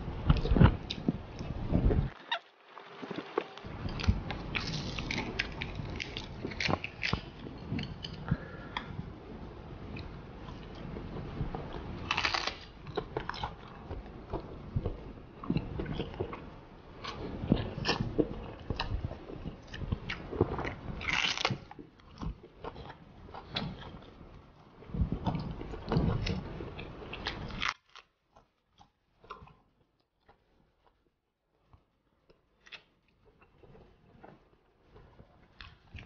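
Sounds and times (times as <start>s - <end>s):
seaweed crunching while chewed: 3.0s - 8.8s, 9.9s - 24.2s, 24.9s - 29.6s.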